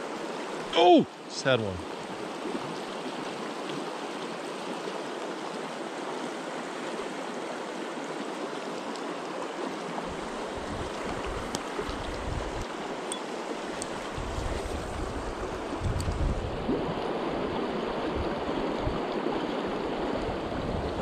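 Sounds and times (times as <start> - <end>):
river running over rocks: 0.0 - 15.8
wind buffeting microphone: 10.1 - 12.6, 13.9 - 19.0, 20.2 - 21.0.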